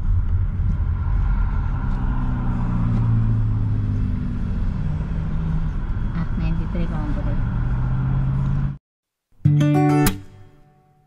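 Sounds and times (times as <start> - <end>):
car engine hum: 0.0 - 8.8
road rumble inside car: 0.0 - 8.8.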